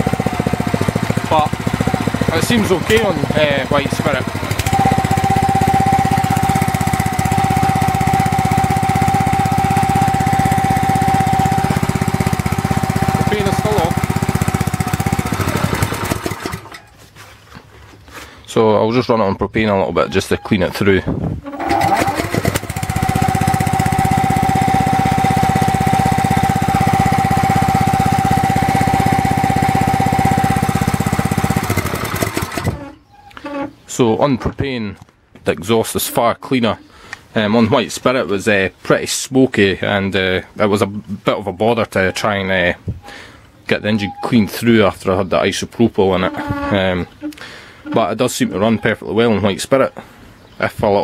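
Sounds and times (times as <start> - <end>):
small petrol engine running: 0.0 - 16.9, 21.4 - 33.0.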